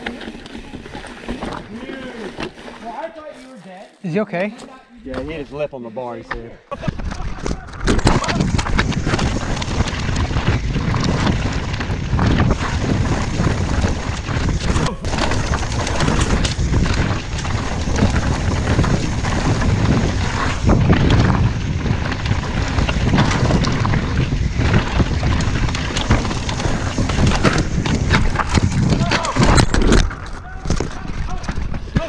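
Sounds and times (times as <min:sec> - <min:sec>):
bike rattling on rocky trail: 0:00.0 - 0:05.6, 0:06.4 - 0:32.0
wind buffeting microphone: 0:06.8 - 0:32.0.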